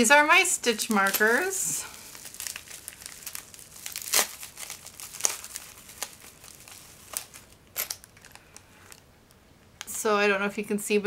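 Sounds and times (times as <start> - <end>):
bubble-wrap pouch crinkling: 0.6 - 9.0.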